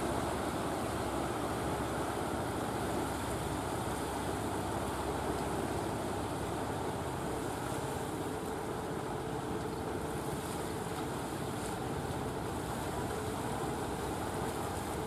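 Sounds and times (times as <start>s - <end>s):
boat engine drone: 0.0s - 15.0s
water wash at bow: 0.0s - 15.0s.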